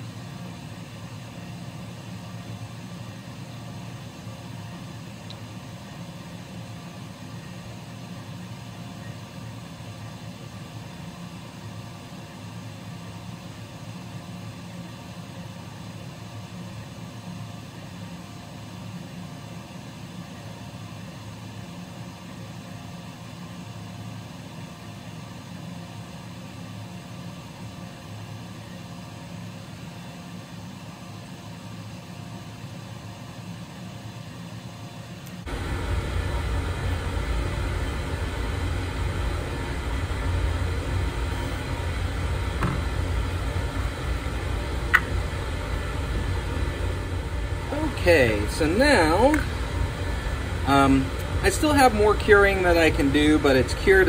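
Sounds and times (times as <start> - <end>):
air compressor humming: 35.0 - 54.0.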